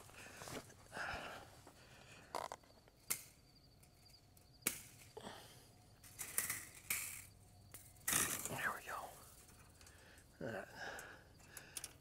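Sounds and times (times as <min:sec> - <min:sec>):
barbed wire clicks and scrapes: 0:06.0 - 0:10.0.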